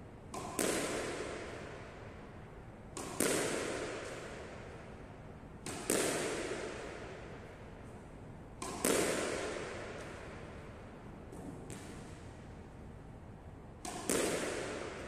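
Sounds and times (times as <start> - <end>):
squash ball hitting wall: 0.3 - 1.8, 2.9 - 4.8, 5.6 - 7.3, 8.6 - 10.4, 13.8 - 15.0.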